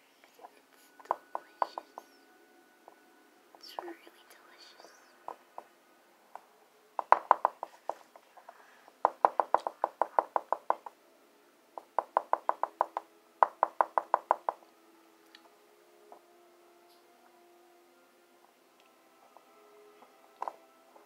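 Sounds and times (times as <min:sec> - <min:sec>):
light tapping on plastic tube: 0:01.0 - 0:02.1.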